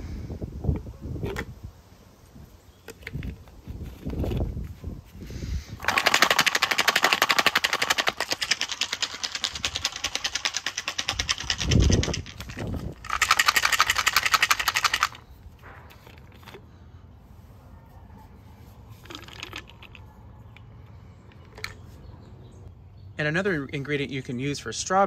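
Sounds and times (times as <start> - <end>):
almonds rattling in plastic bottle: 5.8 - 15.3.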